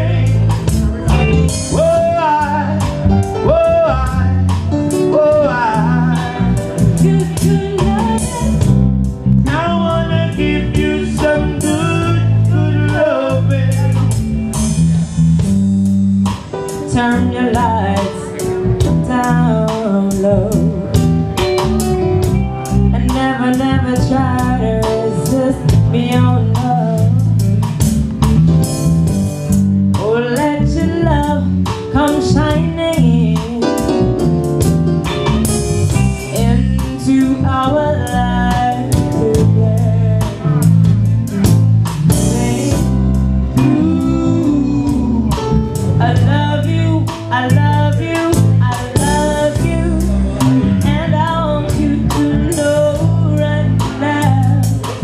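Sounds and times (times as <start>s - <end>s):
bass line: 0.0s - 55.0s
drums: 0.0s - 55.0s
guitar: 0.0s - 55.0s
woman singing: 5.3s - 8.9s, 16.7s - 21.0s, 22.6s - 27.4s, 30.0s - 33.9s, 35.9s - 40.6s, 42.1s - 45.4s, 46.0s - 55.0s.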